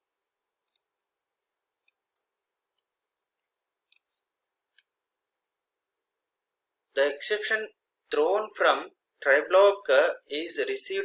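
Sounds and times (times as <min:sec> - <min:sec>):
computer mouse clicking: 0:00.6 - 0:01.1, 0:01.8 - 0:04.9.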